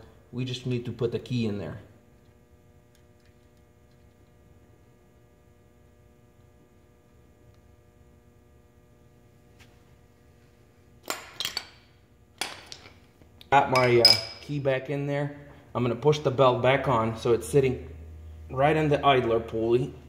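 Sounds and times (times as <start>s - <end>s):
low steady hum: 0.0s - 20.0s
metal clinking: 13.7s - 14.5s.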